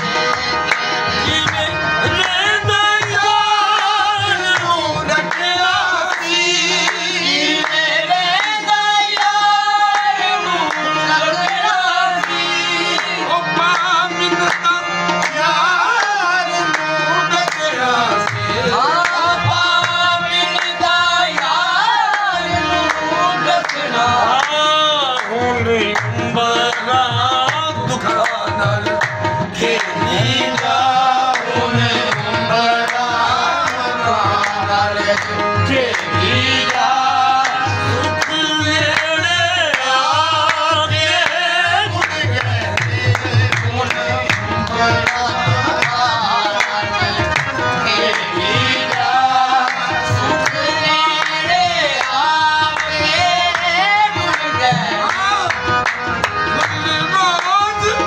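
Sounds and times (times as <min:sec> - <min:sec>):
harmoniums playing: 0:00.0 - 0:58.0
rhythmic hand-clapping: 0:00.0 - 0:58.0
lead and chorus singing: 0:01.5 - 0:13.2, 0:29.4 - 0:41.5, 0:42.2 - 0:55.6.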